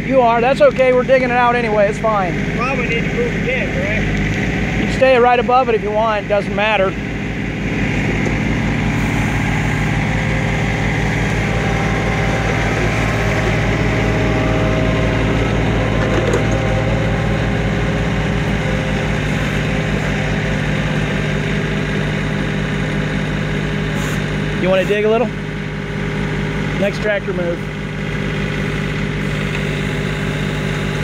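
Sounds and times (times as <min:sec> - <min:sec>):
tractor diesel engine running: 0:00.0 - 0:31.0.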